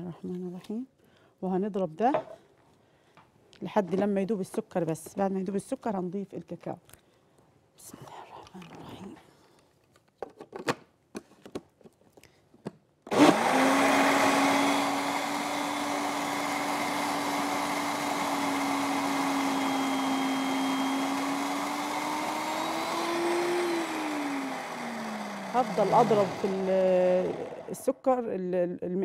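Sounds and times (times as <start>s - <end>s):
blender motor whirring: 13.1s - 27.9s.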